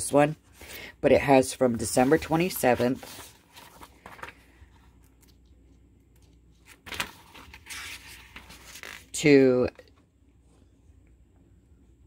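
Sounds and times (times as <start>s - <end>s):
planner pages flipping: 1.7s - 5.4s, 6.2s - 9.1s.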